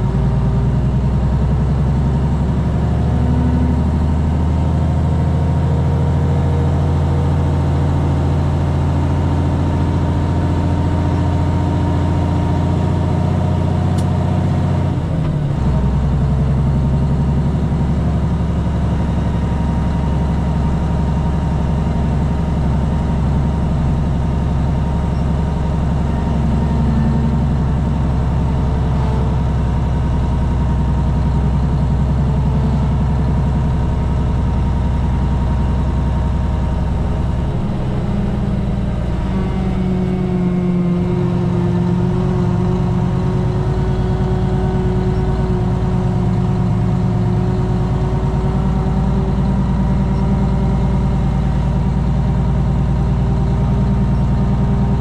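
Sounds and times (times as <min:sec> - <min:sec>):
truck engine running: 0:00.0 - 0:55.0.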